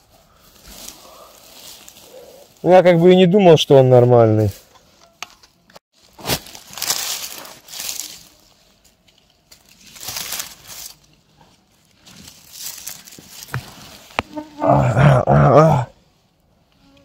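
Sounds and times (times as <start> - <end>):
rustling and crunching in dry leaves: 0.0 - 3.2, 5.9 - 14.6.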